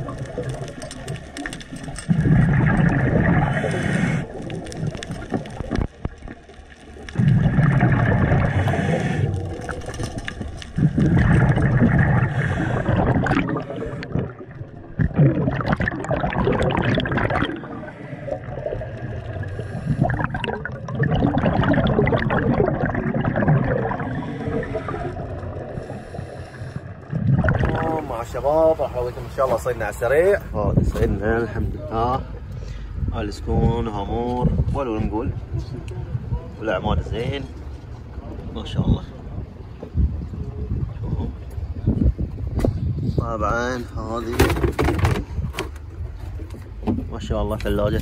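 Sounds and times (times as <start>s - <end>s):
underwater bubbles gurgling: 0.0s - 29.4s.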